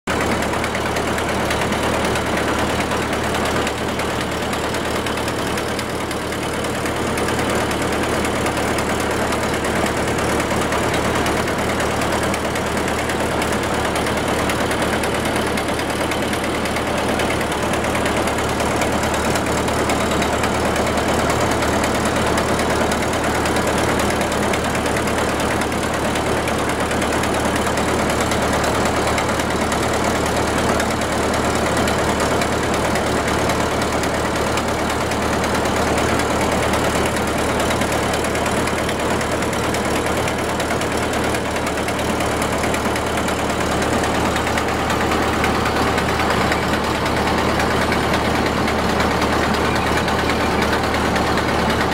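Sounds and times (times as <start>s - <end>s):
boat engine drone: 0.4s - 51.9s.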